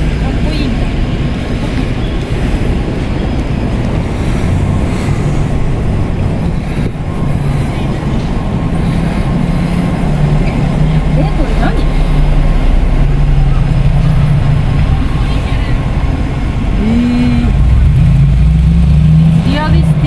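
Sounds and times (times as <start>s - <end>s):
city street traffic rumble: 0.0s - 20.0s.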